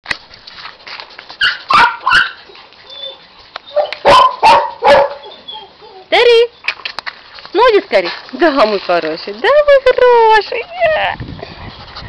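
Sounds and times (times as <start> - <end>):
dog barking: 1.4 - 2.4, 3.8 - 5.3.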